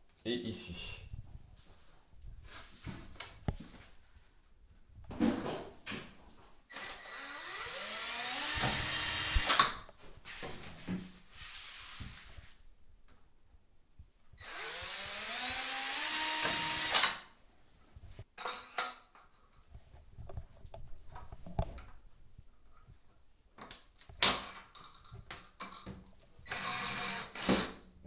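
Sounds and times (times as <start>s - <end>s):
cordless drill boring through plastic: 6.7s - 9.8s, 14.4s - 17.3s, 26.4s - 27.8s.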